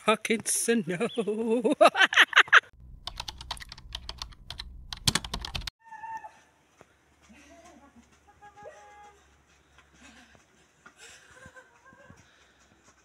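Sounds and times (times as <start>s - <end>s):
person laughing: 1.0s - 2.7s, 11.0s - 12.2s
low rumble: 2.8s - 5.6s.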